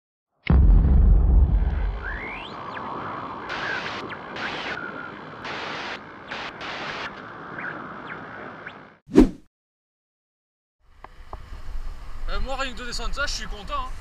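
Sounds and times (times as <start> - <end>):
loud noise bursts: 0.5 - 2.6, 3.4 - 7.1
whistling pitch glides: 2.0 - 2.6
static-like electronic hiss: 2.0 - 9.0.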